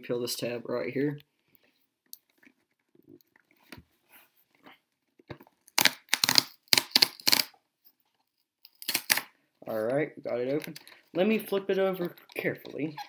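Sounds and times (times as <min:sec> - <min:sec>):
cardboard strip ripping: 0:05.8 - 0:07.5, 0:08.8 - 0:09.3.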